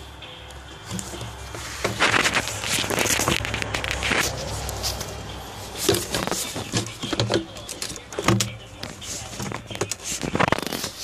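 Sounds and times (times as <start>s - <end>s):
plastic knocks and rubbing: 5.7s - 11.0s.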